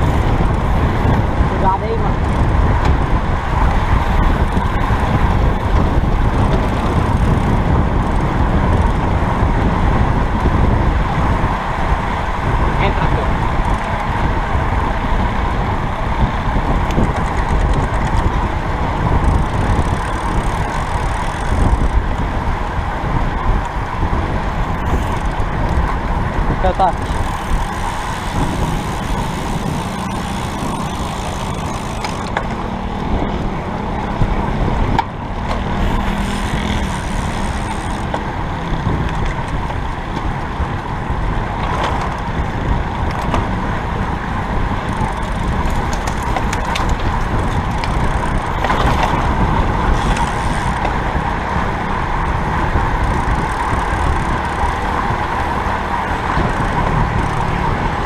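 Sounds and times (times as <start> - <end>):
bike tyres on road: 0.0 - 58.0
wind on microphone: 0.0 - 58.0.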